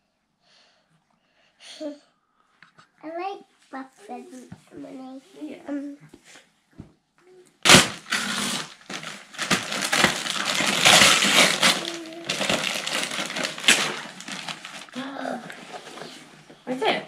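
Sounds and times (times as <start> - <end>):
wrapping paper tearing: 7.6 - 16.2
paper crackling and rustling: 7.6 - 16.3.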